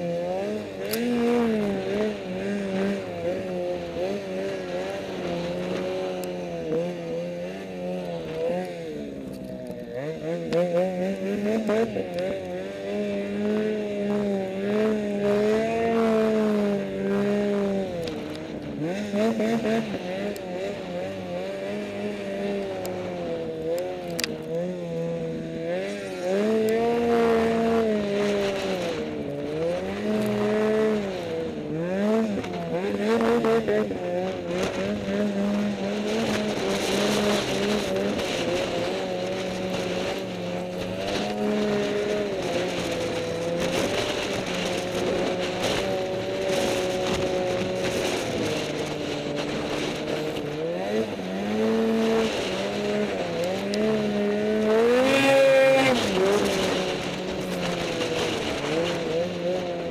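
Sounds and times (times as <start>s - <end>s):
snowmobile engine running: 0.0s - 59.9s.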